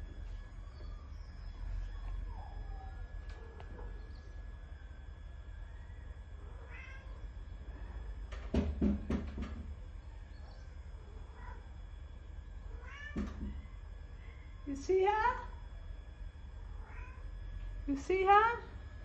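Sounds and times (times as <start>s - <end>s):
cat meowing: 6.6s - 7.2s, 12.8s - 13.2s, 16.8s - 17.2s.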